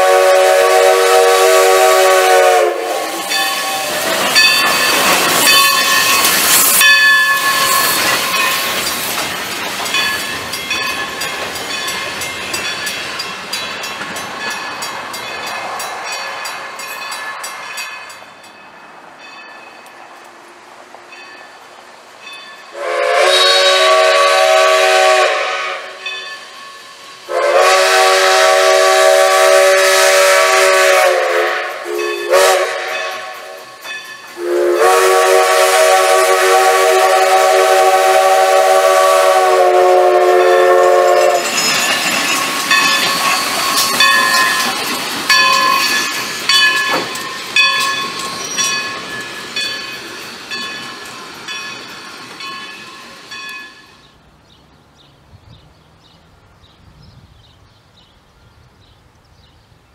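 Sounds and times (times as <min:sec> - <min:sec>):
steam locomotive whistle blasts: 0:00.0 - 0:08.6, 0:22.7 - 0:41.7, 0:45.3 - 0:49.2
steam hissing: 0:00.0 - 0:18.2, 0:21.6 - 0:54.2
train cars rattling and clanking: 0:00.0 - 0:56.8.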